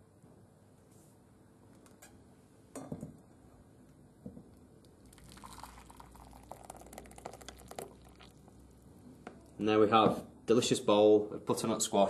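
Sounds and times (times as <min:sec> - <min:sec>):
thick soup pouring into bowl: 0:05.0 - 0:08.8.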